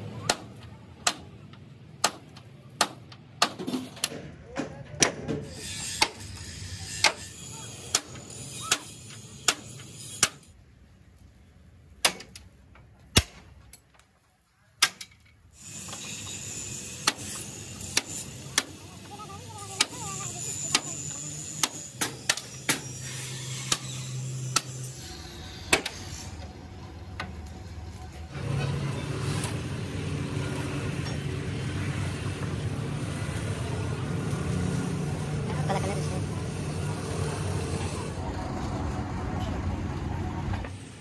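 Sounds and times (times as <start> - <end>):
loud steady mechanical noise: 5.0 - 10.6, 15.5 - 41.0.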